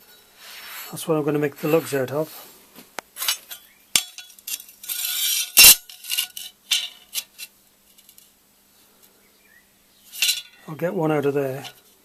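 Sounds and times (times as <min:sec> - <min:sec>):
steel scraping on steel plate: 0:03.2 - 0:08.2, 0:10.1 - 0:10.6.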